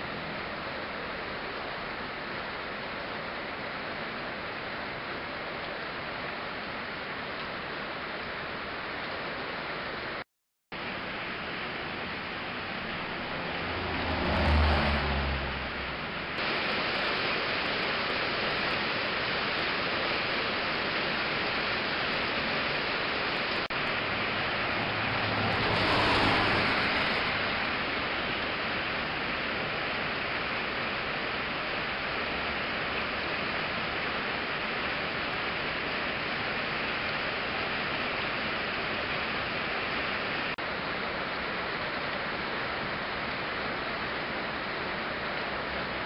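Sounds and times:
rain hissing: 10.8 - 46.0
vehicle passing: 12.5 - 16.4, 23.8 - 28.5.

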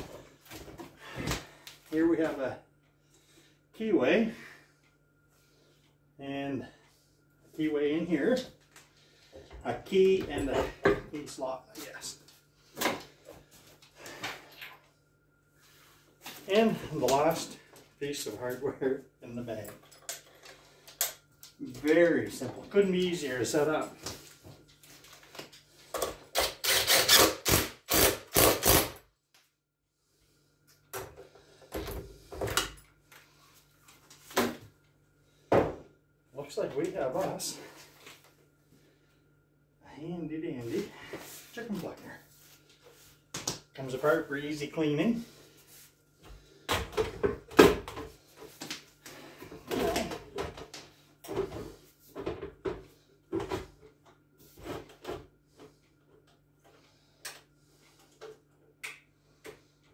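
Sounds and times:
cordless drill driving bolts: 26.4 - 29.0.

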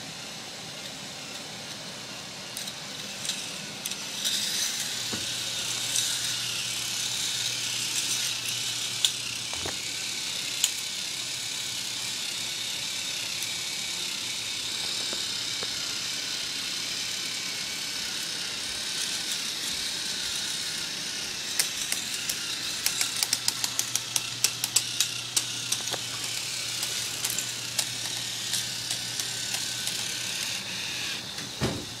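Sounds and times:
motor and plastic chain whirring: 0.0 - 32.0
rapid plastic clicks and rattles: 21.5 - 30.2.

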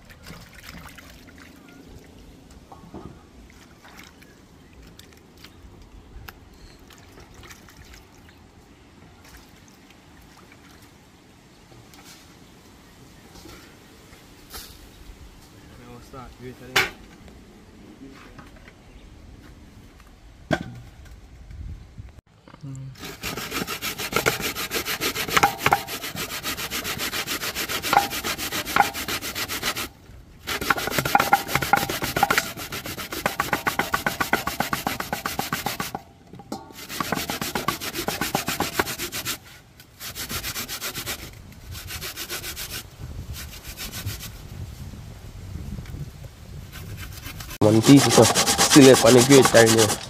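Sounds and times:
coconut grating rasps: 23.0 - 29.9, 30.5 - 36.0, 36.7 - 39.4, 46.8 - 50.0.

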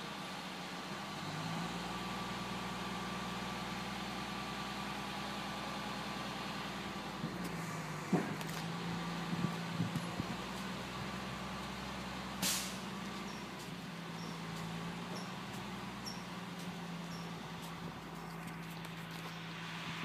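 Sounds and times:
garbage truck engine running: 0.0 - 20.0
air-brake hiss: 12.4 - 12.9.

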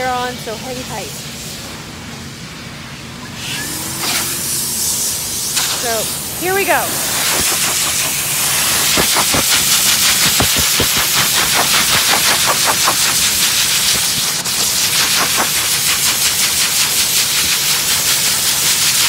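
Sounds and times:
dog dryer blowing air: 0.0 - 19.0
air fluttering through fur: 0.1 - 19.0.

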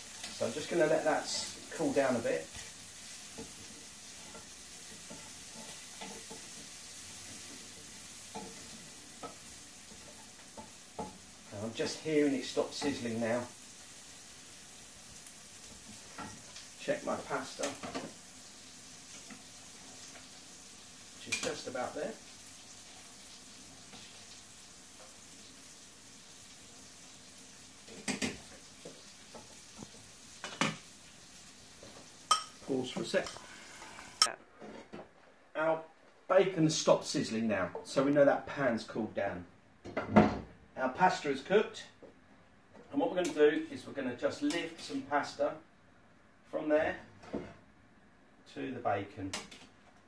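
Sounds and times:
bacon sizzling in a frying pan: 0.0 - 34.3
faint steady hiss: 0.0 - 50.0.

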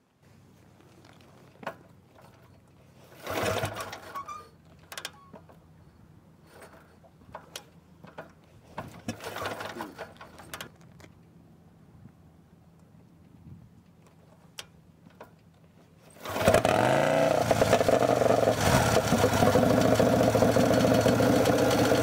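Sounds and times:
motorcycle engine idling: 17.4 - 22.0.

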